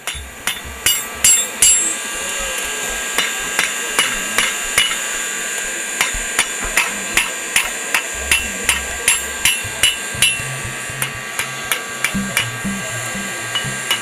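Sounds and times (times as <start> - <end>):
hammer ringing on anvil: 0.0 - 14.0.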